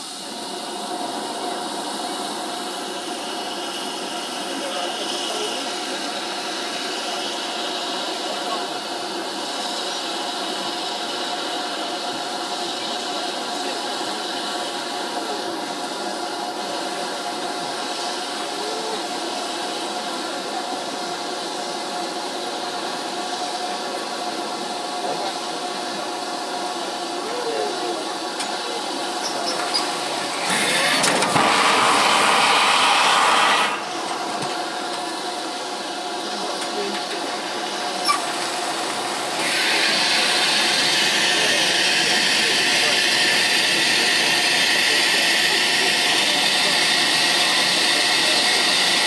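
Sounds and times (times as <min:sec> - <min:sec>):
train wheels on rails: 0:00.0 - 0:49.0
loud rushing noise: 0:29.9 - 0:35.5
wheel squeals: 0:38.0 - 0:38.3.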